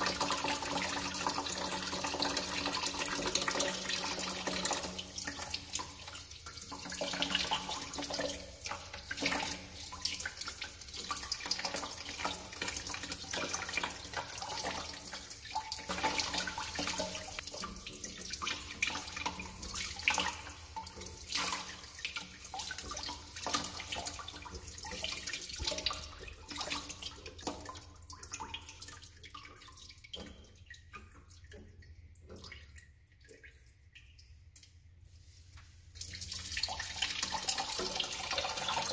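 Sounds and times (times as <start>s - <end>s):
water trickling into a bucket: 0.0s - 38.9s.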